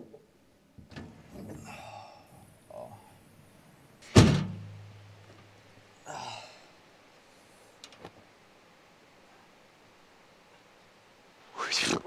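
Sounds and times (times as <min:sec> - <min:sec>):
tailgate dropping with metal thunk: 0:00.8 - 0:01.6, 0:04.0 - 0:04.9
sigh-like breath: 0:01.6 - 0:03.2.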